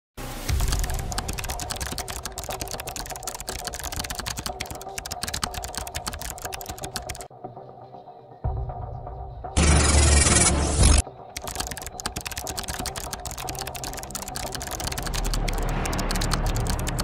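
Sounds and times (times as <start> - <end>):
keyboard typing: 0.5 - 7.3, 9.6 - 17.0.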